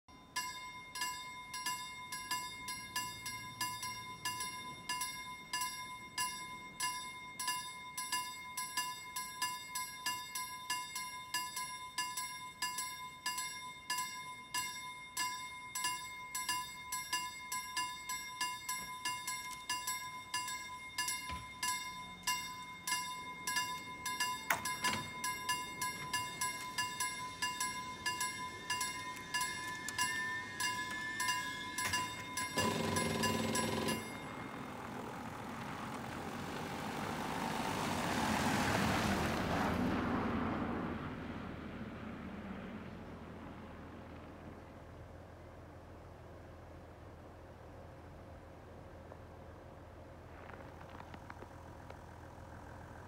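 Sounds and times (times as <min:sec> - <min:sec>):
level-crossing bells ringing: 0:00.0 - 0:37.4.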